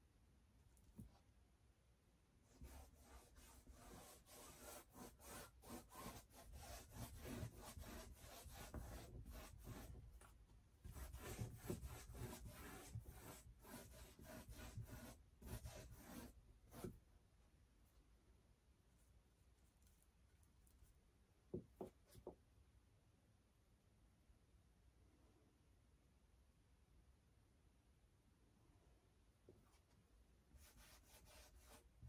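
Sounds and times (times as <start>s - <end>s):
brush scrubbing paint on canvas: 2.5s - 17.0s, 30.6s - 32.0s.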